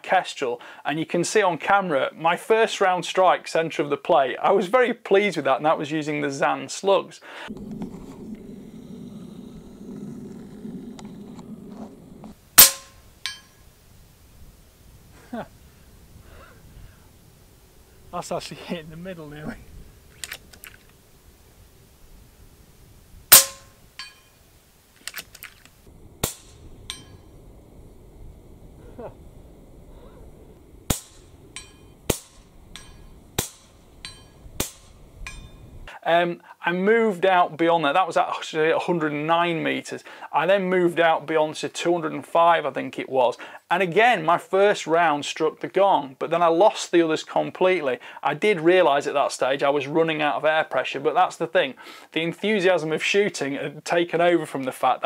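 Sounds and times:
air rifle shot crack: 0:12.6 - 0:13.1, 0:23.3 - 0:23.8, 0:26.2 - 0:27.2, 0:30.8 - 0:33.8, 0:34.6 - 0:35.0
pellet pinging steel plate: 0:12.6 - 0:13.7, 0:23.3 - 0:24.4, 0:26.2 - 0:27.3, 0:30.9 - 0:35.7
steel gong ringing: 0:26.2 - 0:27.4, 0:31.1 - 0:33.2, 0:34.0 - 0:34.4.

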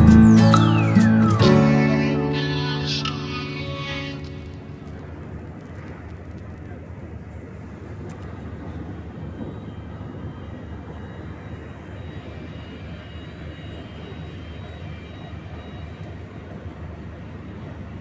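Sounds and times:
ship engines droning: 0:00.0 - 0:18.0.

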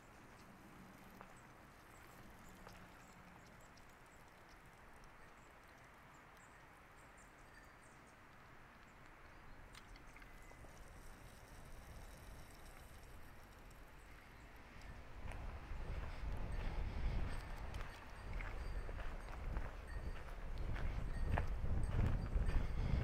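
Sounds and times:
footsteps on mountain path: 0:00.0 - 0:04.5, 0:14.1 - 0:23.0.

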